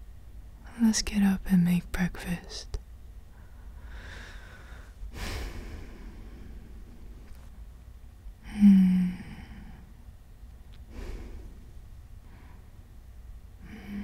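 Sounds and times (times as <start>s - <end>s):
man breathing softly: 3.3s - 7.5s, 10.9s - 12.9s.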